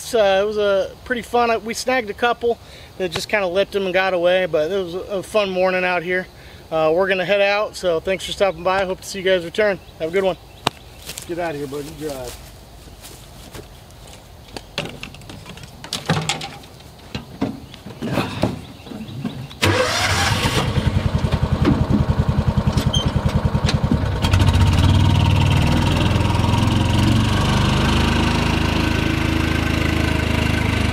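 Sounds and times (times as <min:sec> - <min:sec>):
vehicle engine running: 0:19.6 - 0:30.9.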